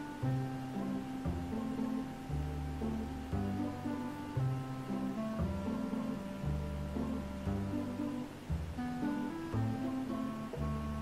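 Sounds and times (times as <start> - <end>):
instrumental music with bass line: 0.0 - 11.0.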